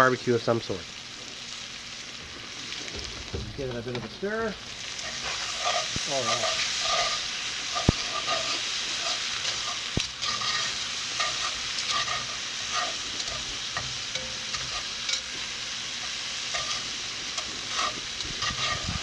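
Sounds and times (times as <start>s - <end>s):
vegetables sizzling in a pot: 0.0s - 19.0s
metal utensil scraping a pot: 5.0s - 15.3s, 16.0s - 19.0s.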